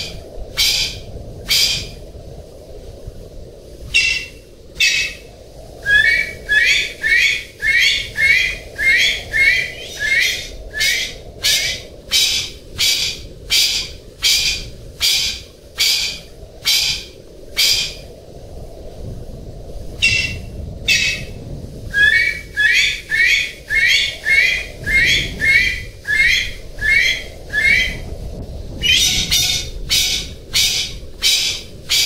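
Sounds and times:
pheasant harsh raspy calls: 0.0 - 2.0, 5.8 - 18.0, 20.0 - 21.3, 21.9 - 28.0, 28.8 - 32.0.

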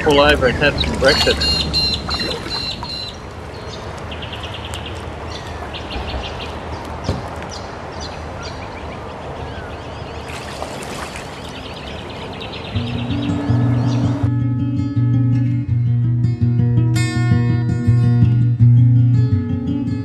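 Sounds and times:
birds calling: 0.0 - 14.3
paddle strokes in water: 0.7 - 3.1, 10.2 - 12.4
acoustic guitar music: 11.6 - 20.0.

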